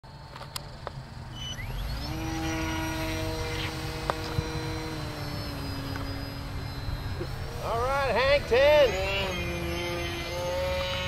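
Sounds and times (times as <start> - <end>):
electric motor and propeller whine: 0.1 - 11.0.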